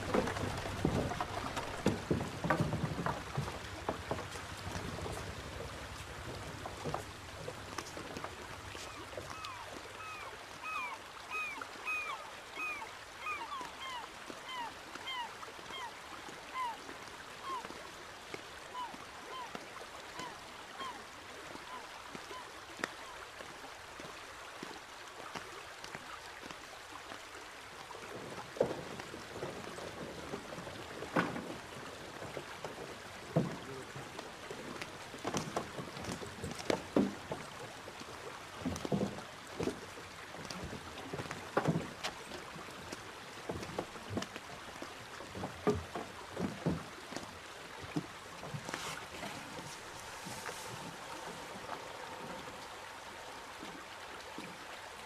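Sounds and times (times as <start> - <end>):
footsteps on wooden planks: 0.0 - 9.4, 34.8 - 44.4, 45.2 - 51.6
wooden boat creaking: 0.0 - 15.9, 28.2 - 54.6
faint hiss of water: 3.1 - 55.0.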